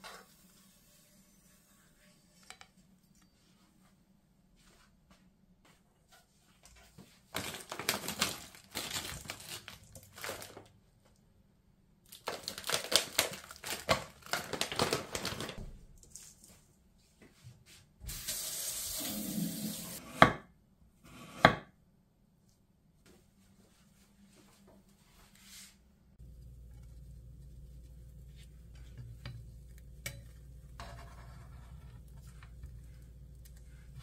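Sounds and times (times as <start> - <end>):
running tap water: 18.1 - 20.0.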